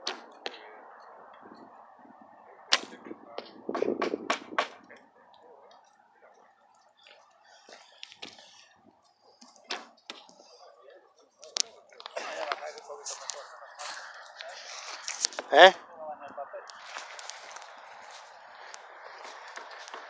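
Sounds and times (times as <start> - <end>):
footsteps on gravel: 16.7 - 20.0.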